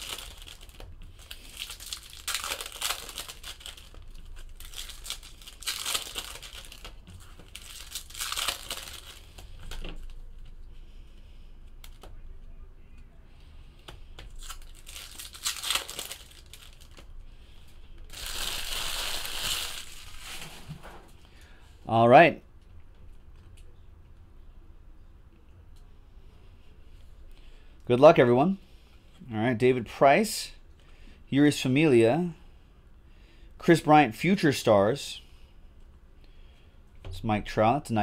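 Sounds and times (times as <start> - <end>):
foil wrappers torn and crumpled: 0.0 - 9.8, 14.3 - 17.1, 18.1 - 20.7.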